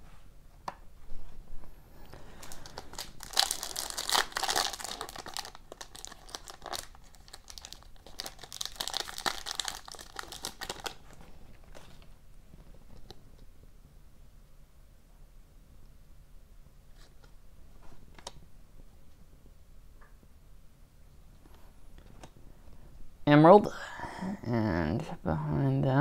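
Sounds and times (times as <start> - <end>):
foil wrapper tearing and crinkling: 2.4 - 12.0.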